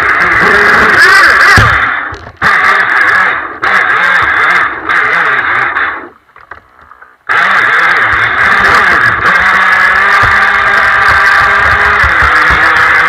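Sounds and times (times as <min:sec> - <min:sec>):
jet boat engine: 0:00.0 - 0:13.0
water rushing under hull: 0:06.7 - 0:13.0.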